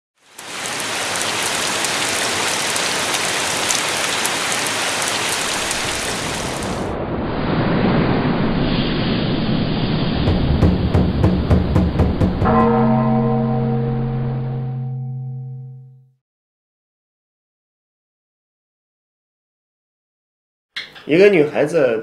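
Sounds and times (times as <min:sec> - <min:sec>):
steady rain falling: 0:00.2 - 0:07.0
low rumble: 0:06.6 - 0:16.0.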